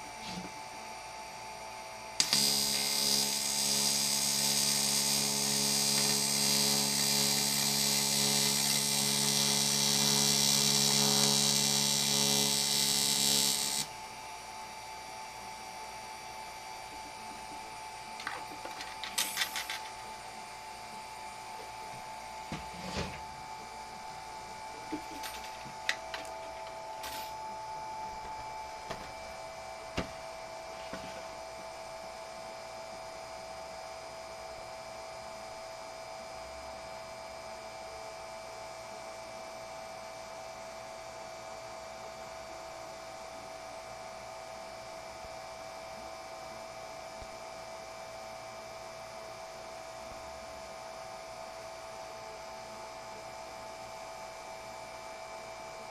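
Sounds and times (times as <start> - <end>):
high electrical hum: 0.0 - 55.9.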